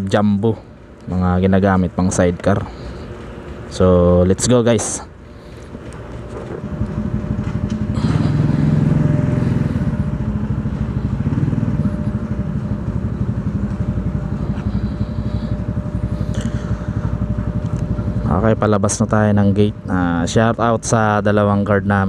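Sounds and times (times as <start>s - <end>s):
motorcycle engine throbbing: 5.1s - 22.0s.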